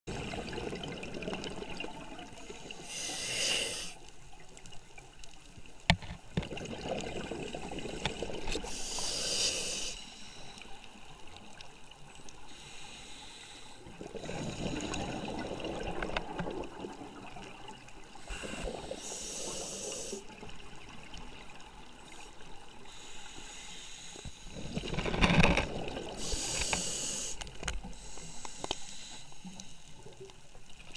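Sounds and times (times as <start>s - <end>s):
gurgling exhaled bubbles: 0.1s - 2.9s, 6.4s - 8.7s, 13.9s - 19.7s, 24.5s - 26.5s
diver breathing through regulator: 2.8s - 4.0s, 8.1s - 10.6s, 18.2s - 20.3s, 22.9s - 24.8s, 26.2s - 29.8s.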